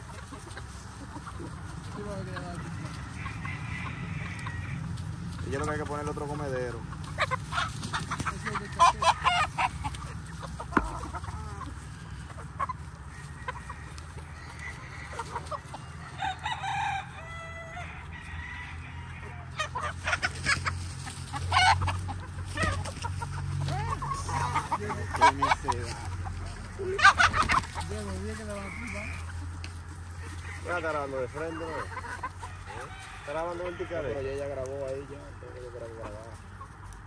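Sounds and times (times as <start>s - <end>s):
chickens clucking: 0.0s - 37.0s
rooster crowing: 2.0s - 6.6s, 13.0s - 20.4s, 27.9s - 29.3s, 30.0s - 34.8s.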